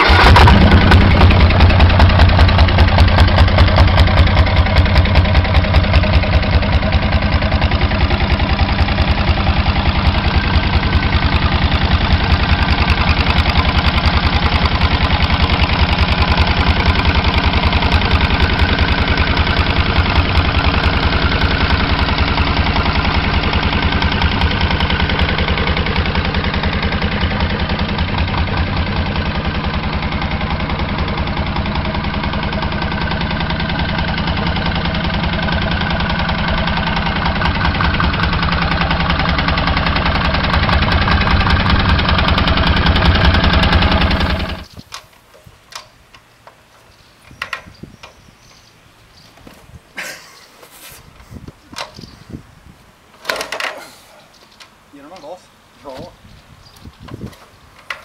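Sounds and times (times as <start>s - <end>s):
diesel motorcycle engine idling: 0.0s - 44.7s.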